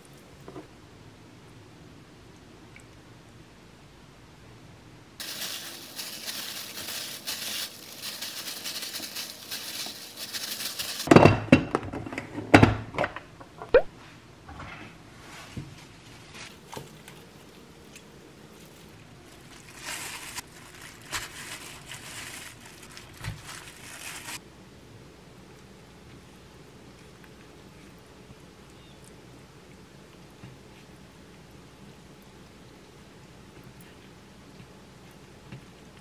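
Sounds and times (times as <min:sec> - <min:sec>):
plastic glove crinkling: 0:05.2 - 0:11.1, 0:15.9 - 0:24.4.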